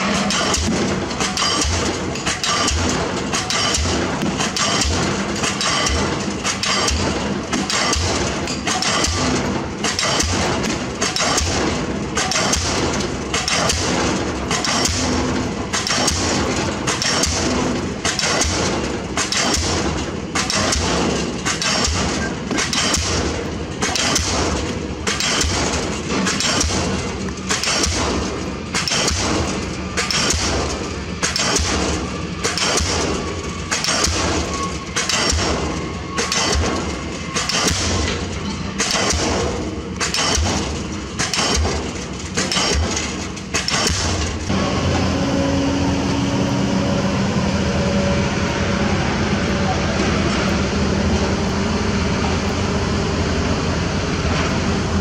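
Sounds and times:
pile hammer blows: 0:00.0 - 0:44.6
engine hum: 0:00.0 - 0:55.0.

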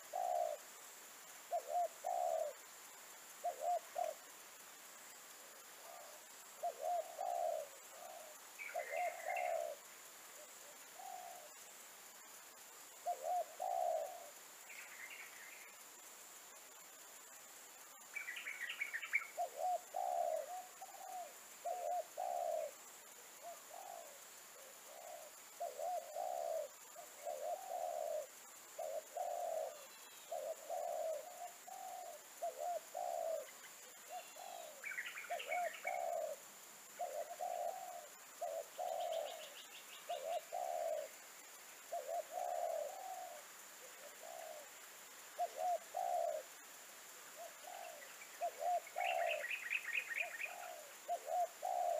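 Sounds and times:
dove cooing: 0:00.0 - 0:00.7, 0:01.5 - 0:02.7, 0:03.3 - 0:04.4, 0:05.5 - 0:11.6, 0:12.9 - 0:15.6, 0:18.2 - 0:51.9
small bird chirping: 0:05.8 - 0:09.9, 0:18.0 - 0:22.7, 0:23.4 - 0:41.2, 0:47.3 - 0:51.9.

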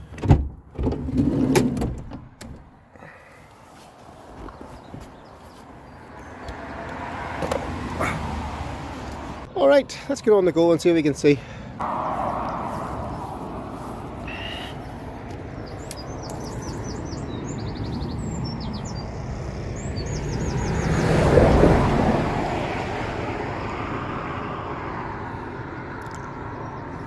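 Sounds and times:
road traffic passing: 0:00.0 - 0:27.0
small birds chirping: 0:02.9 - 0:08.3, 0:12.7 - 0:21.1, 0:25.3 - 0:27.0.

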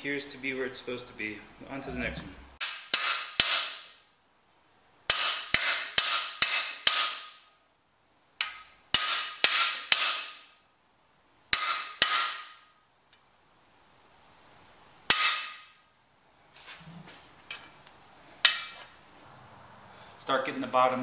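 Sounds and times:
hammer striking metal bar: 0:02.6 - 0:04.0, 0:05.1 - 0:07.5, 0:08.4 - 0:10.6, 0:11.5 - 0:12.7, 0:15.1 - 0:15.8, 0:18.4 - 0:18.8.

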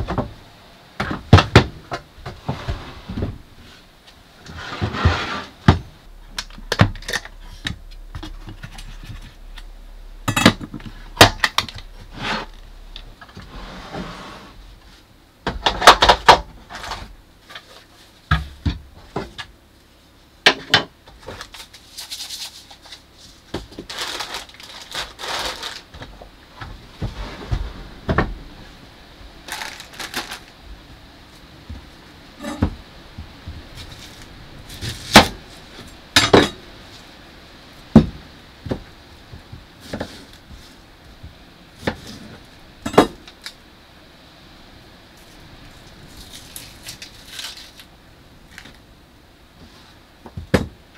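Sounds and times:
drawer opening: 0:02.3 - 0:03.4, 0:04.4 - 0:09.3, 0:13.2 - 0:14.6.

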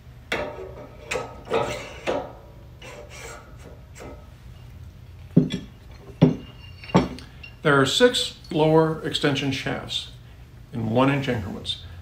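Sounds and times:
metal parts knocking and sliding: 0:00.3 - 0:04.7, 0:05.3 - 0:07.6.

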